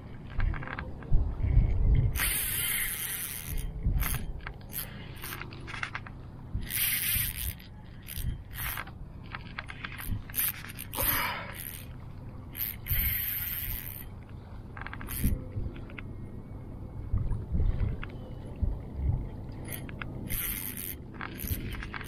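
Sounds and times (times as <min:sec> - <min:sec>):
fishing reel cranking: 0:01.6 - 0:14.2, 0:14.8 - 0:16.0, 0:19.6 - 0:22.0.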